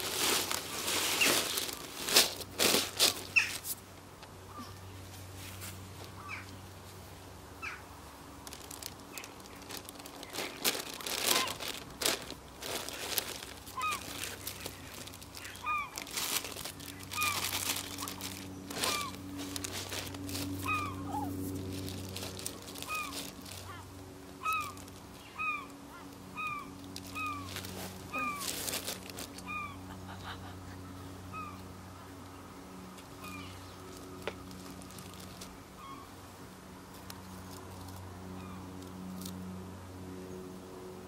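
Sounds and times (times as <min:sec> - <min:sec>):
plastic bags crinkling: 0:00.0 - 0:03.7, 0:08.4 - 0:29.5, 0:33.8 - 0:35.6
low steady hum: 0:00.0 - 0:41.0.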